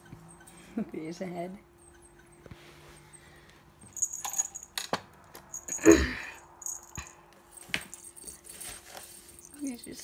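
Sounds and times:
faint steady hum: 0.0 - 10.0
cat toy jingling: 3.9 - 4.8, 5.5 - 10.0.

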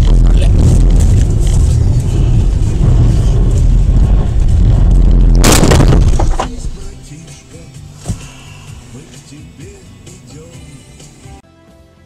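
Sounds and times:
heavy crash bang: 0.0 - 7.1
car rumbling on snowy road: 0.0 - 7.6.

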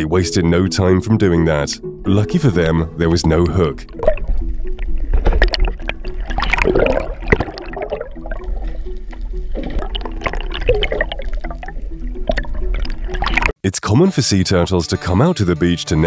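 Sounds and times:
background music: 0.0 - 16.0
water gurgling and sloshing: 1.8 - 13.5.

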